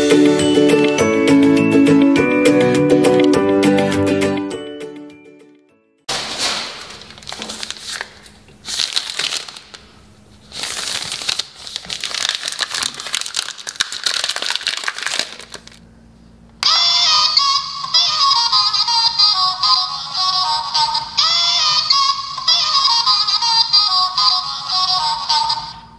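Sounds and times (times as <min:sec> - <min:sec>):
plastic wrapper crinkling: 0:06.1 - 0:15.8
children's song with synthetic singing: 0:16.6 - 0:25.9.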